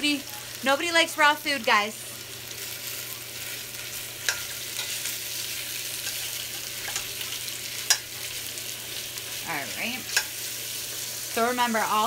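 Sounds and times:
meat sizzling in oil: 0.0 - 12.0
metal spoon clinking on pot: 4.2 - 5.0, 6.0 - 7.1.

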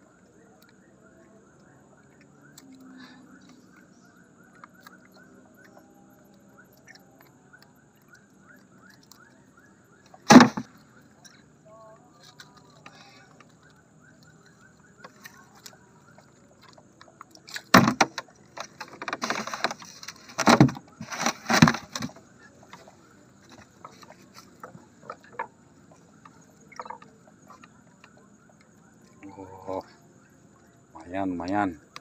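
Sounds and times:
water splashing: 12.3 - 31.6.

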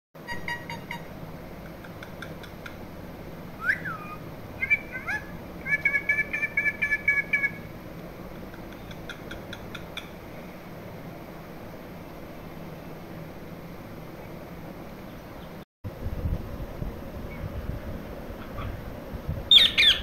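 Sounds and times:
parakeet whistled chirps: 3.6 - 7.6, 19.5 - 20.0.

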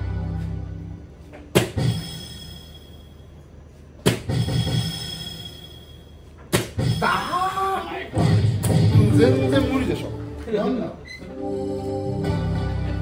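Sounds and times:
darts hitting dartboard: 1.5 - 2.0, 4.0 - 4.8, 6.4 - 7.0
electronic dartboard sound: 4.0 - 7.4.

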